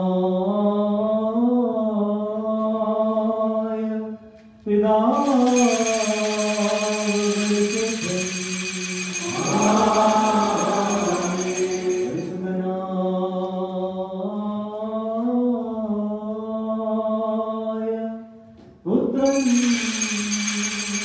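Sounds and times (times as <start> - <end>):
small bells jingling: 5.2 - 12.5, 19.2 - 21.0
male voices chanting: 9.1 - 15.1.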